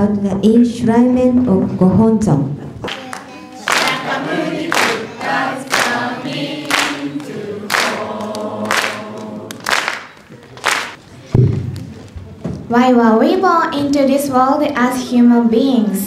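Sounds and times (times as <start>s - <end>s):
group of voices singing: 2.9s - 10.1s.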